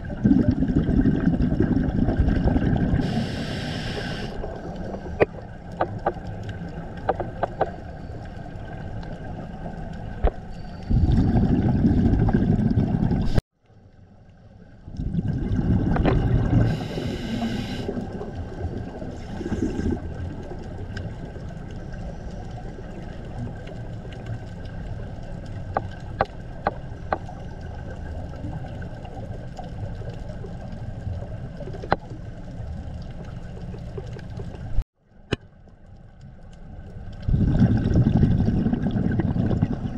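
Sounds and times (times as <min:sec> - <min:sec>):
scuba regulator bubbles: 0:00.0 - 0:13.4, 0:14.8 - 0:34.8, 0:36.7 - 0:39.9
underwater low rumble: 0:00.0 - 0:39.9.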